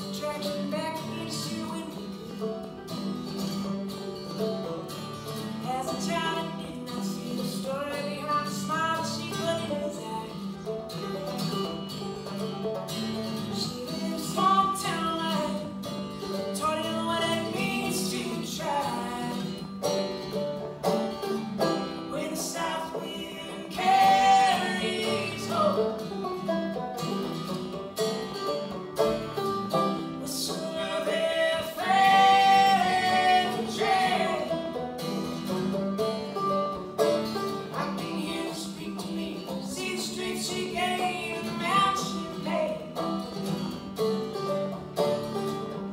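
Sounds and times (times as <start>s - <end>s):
man and woman singing: 0.0s - 2.3s, 5.6s - 10.5s, 13.5s - 15.8s, 16.5s - 19.6s, 22.0s - 26.0s, 30.0s - 34.8s, 37.7s - 42.9s
acoustic guitar: 0.0s - 45.9s
banjo: 0.0s - 45.9s.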